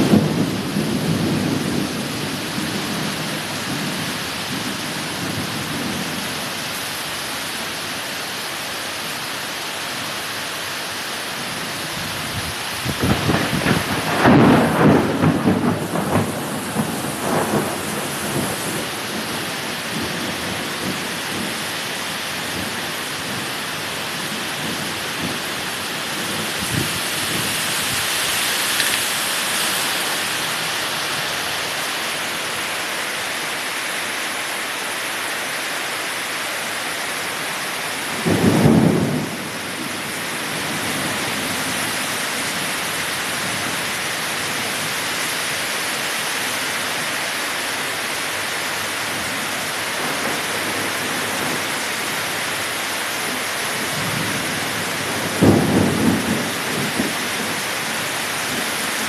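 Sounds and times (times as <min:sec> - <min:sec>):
heavy rain pouring: 0:00.0 - 0:59.0
thunder clap: 0:12.9 - 0:18.6, 0:55.3 - 0:57.1.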